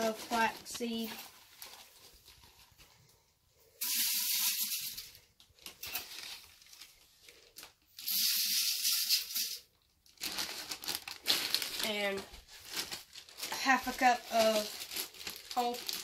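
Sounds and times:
seed pouring into metal bucket: 3.8s - 5.1s, 8.0s - 9.7s.

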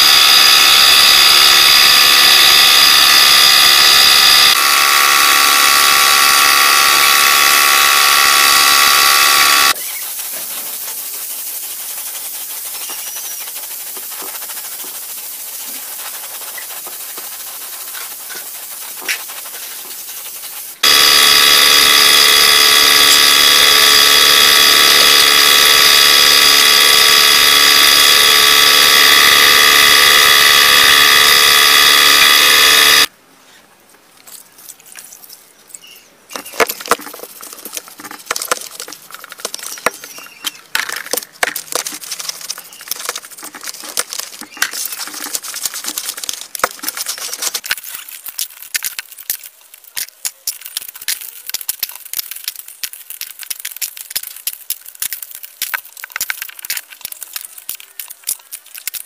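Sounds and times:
paint spray gun hissing: 0.0s - 33.1s
brushes scrubbing: 4.8s - 32.5s, 36.4s - 40.5s, 41.1s - 59.0s.

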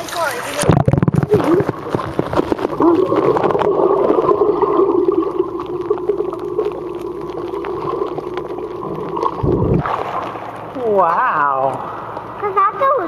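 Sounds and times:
water splashing and bubbles: 0.0s - 12.9s
muffled underwater drone: 0.6s - 13.0s.

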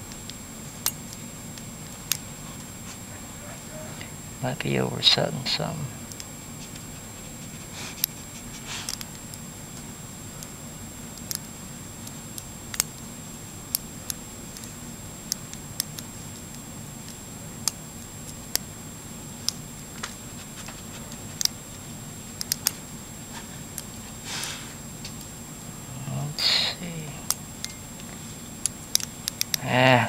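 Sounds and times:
faint steady hum: 0.0s - 30.0s
lock pick clicks: 8.9s - 9.4s, 11.2s - 13.0s, 22.4s - 22.8s, 27.2s - 27.8s, 28.6s - 29.6s.

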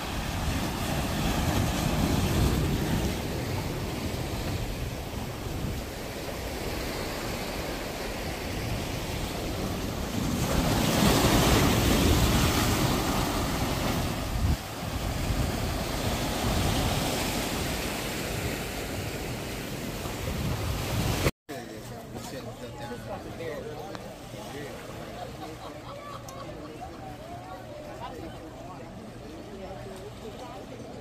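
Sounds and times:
surf washing on beach: 0.0s - 21.3s
wind on microphone: 0.0s - 21.3s.

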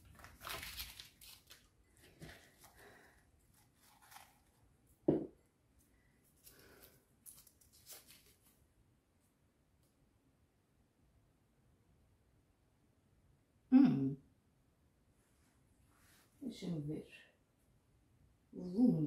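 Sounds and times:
paper crinkling and rustling: 0.0s - 4.7s, 6.3s - 8.6s.

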